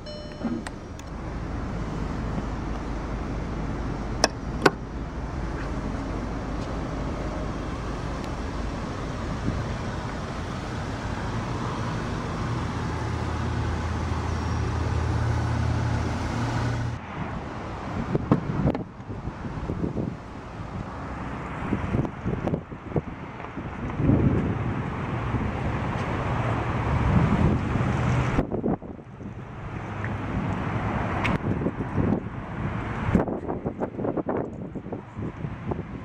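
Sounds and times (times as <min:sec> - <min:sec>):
low vehicle hum: 0:00.0 - 0:36.0
fuel door clicking shut: 0:00.3 - 0:01.2
wind on microphone: 0:04.0 - 0:11.7, 0:16.9 - 0:26.2, 0:26.8 - 0:36.0.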